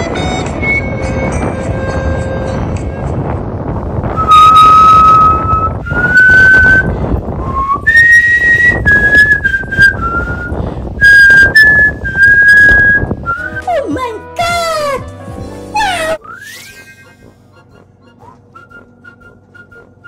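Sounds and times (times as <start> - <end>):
low rushing background: 0.0 - 13.6
whistled melody: 0.1 - 2.6, 4.1 - 13.8, 15.7 - 20.0.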